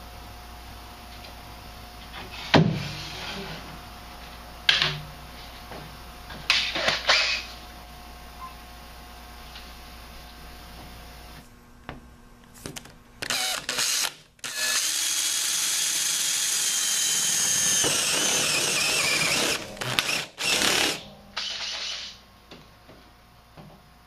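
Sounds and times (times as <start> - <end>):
drill whining through sheet metal: 13.2 - 22.2.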